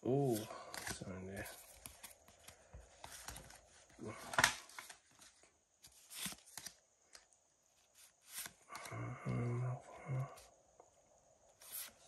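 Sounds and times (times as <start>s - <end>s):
cards swishing against cards: 5.9s - 7.2s, 7.9s - 8.7s, 11.6s - 12.0s.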